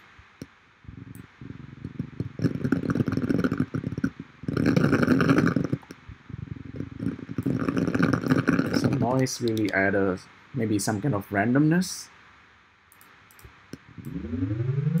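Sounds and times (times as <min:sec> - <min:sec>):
crackling synthesized noise: 0:01.0 - 0:10.0, 0:13.8 - 0:15.0.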